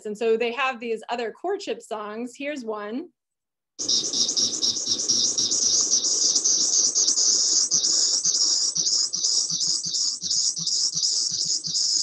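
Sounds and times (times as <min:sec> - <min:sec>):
cicada buzzing call: 0:03.8 - 0:12.0.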